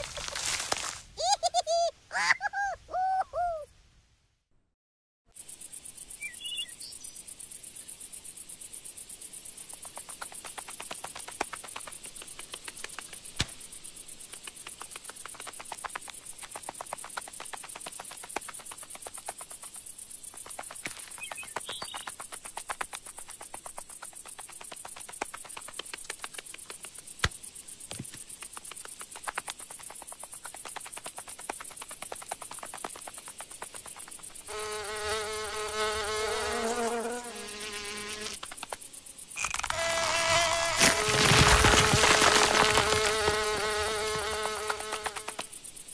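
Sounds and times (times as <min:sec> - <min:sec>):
crickets chirping: 0:05.4 - 0:45.9
bird chirps: 0:06.1 - 0:07.2, 0:21.1 - 0:22.2.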